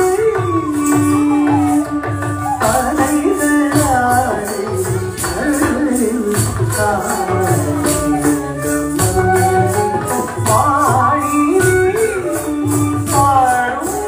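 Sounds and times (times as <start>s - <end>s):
jingling beat: 0.0s - 14.0s
person singing: 0.0s - 14.0s.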